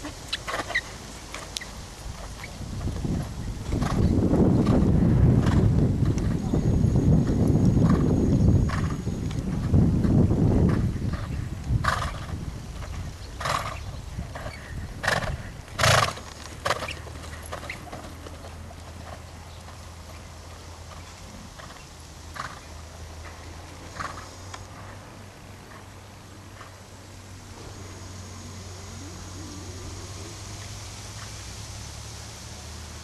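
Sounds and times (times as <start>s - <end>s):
hoofbeats on sand: 0.0s - 25.0s.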